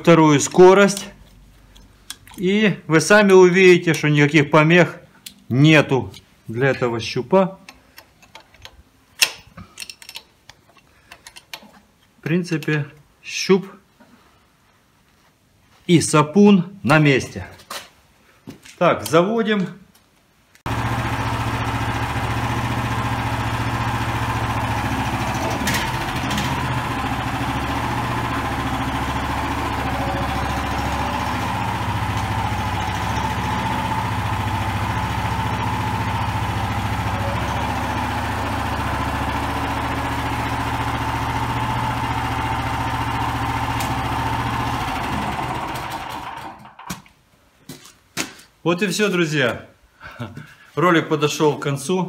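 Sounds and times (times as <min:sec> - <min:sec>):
petrol engine idling: 0:20.7 - 0:46.6.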